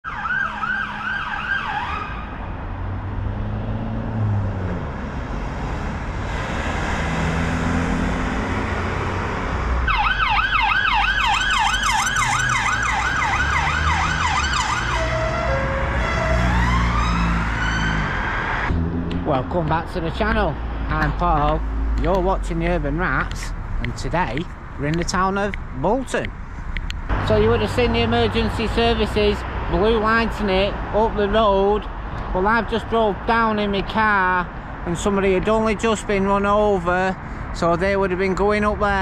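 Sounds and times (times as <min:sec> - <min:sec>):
siren wailing: 0:00.0 - 0:02.6, 0:09.8 - 0:19.5
siren yelping: 0:00.0 - 0:02.6, 0:09.8 - 0:19.3
passing traffic rumble: 0:00.1 - 0:39.0.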